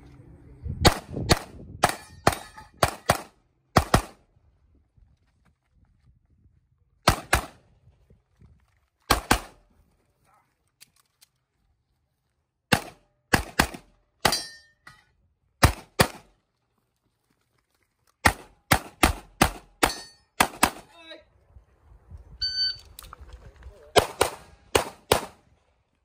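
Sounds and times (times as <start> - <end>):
handgun shots: 9.1 - 9.6, 24.0 - 25.4.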